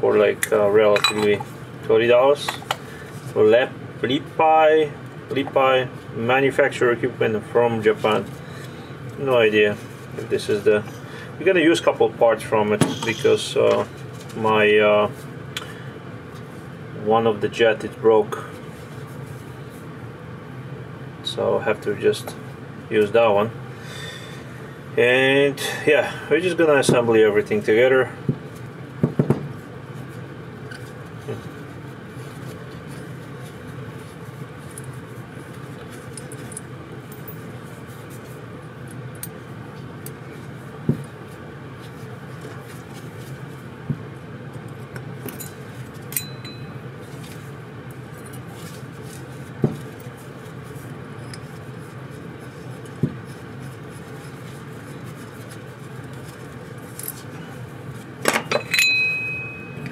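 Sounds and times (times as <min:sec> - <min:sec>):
steady low hum: 0:00.0 - 0:59.9
metal parts and tools clinking: 0:58.2 - 0:59.9.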